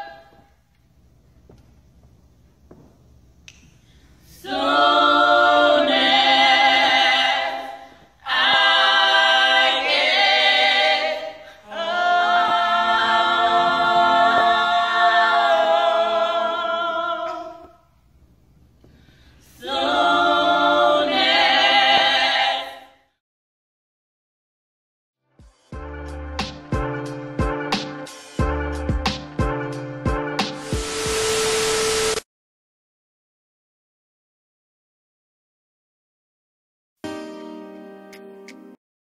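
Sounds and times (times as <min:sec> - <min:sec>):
women singing a cappella: 0:00.0 - 0:00.6, 0:04.3 - 0:17.9, 0:19.4 - 0:23.1.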